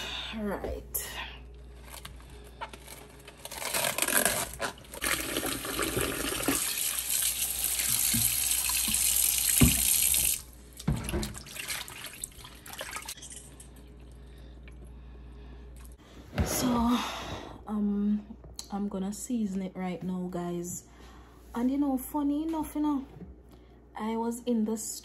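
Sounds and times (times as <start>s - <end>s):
tap running into sink: 7.8s - 11.4s.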